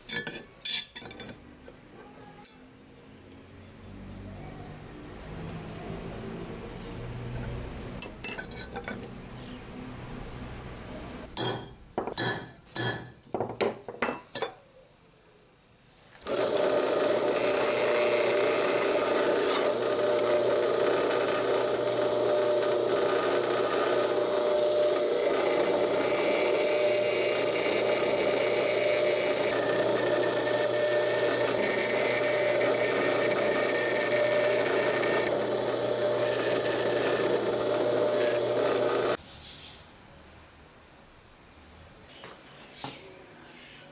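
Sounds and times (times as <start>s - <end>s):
electric drill boring steel: 16.2s - 39.2s.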